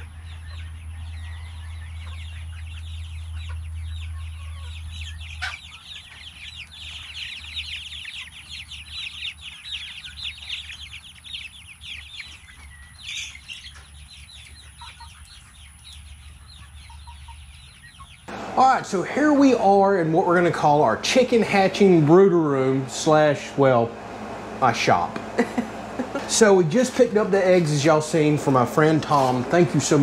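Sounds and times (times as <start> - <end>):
low steady rumble: 0.0 - 5.8, 18.3 - 30.0
chicks peeping: 0.0 - 30.0.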